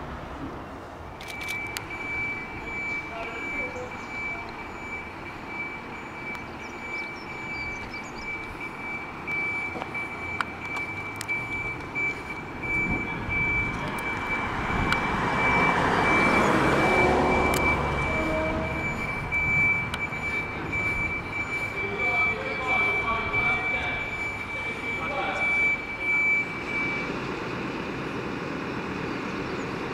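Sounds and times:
fire engine diesel engine running: 0.6 - 29.9
sharp clicks: 1.2 - 2.2, 9.3 - 15.1
steady high-pitched tone: 7.0 - 27.1.

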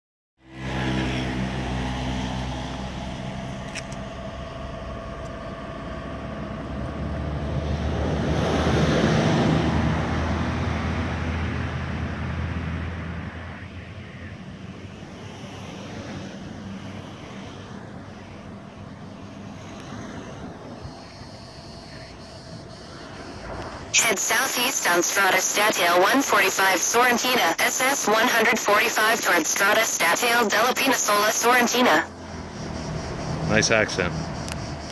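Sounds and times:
vehicle passing close by: 0.4 - 3.6, 6.1 - 20.8, 32.1 - 34.9
vehicle engine humming: 0.4 - 34.9.

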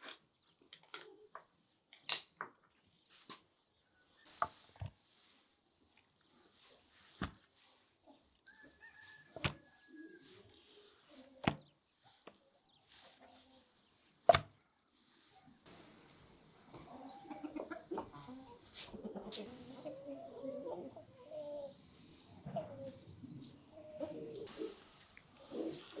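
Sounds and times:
chickens clucking: 6.2 - 26.0.

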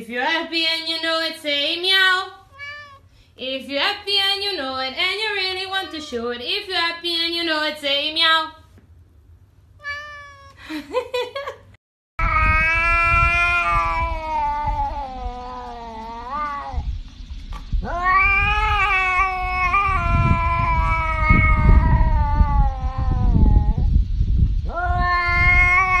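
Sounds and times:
cat yowling meows: 2.5 - 3.1, 5.5 - 6.3, 9.8 - 10.6, 12.2 - 16.9, 17.8 - 23.9, 24.7 - 26.0
low rumble: 12.2 - 26.0.

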